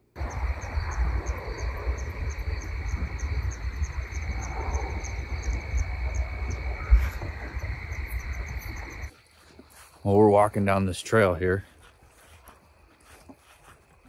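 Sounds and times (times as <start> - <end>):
crickets chirping: 0.0 - 14.0
low rumble on microphone: 0.1 - 9.1.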